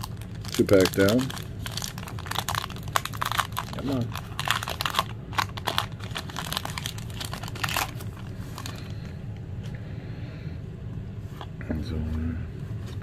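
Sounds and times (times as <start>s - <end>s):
foil wrapper crinkling: 0.0s - 9.0s
low steady hum: 0.0s - 13.0s.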